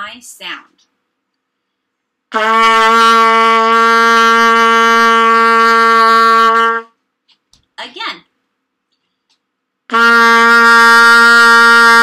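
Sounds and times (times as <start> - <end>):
trumpet long note: 2.3 - 6.9, 9.9 - 12.0.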